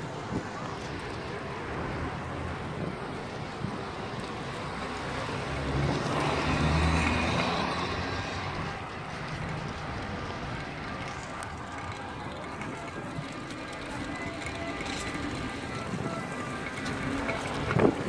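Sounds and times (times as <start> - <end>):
outdoor background noise: 0.0 - 18.0
vehicle engine passing: 4.9 - 18.0.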